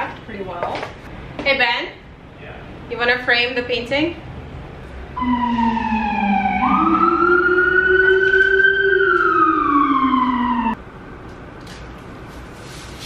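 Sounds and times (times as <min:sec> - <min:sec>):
emergency vehicle siren wailing: 0:05.1 - 0:10.8.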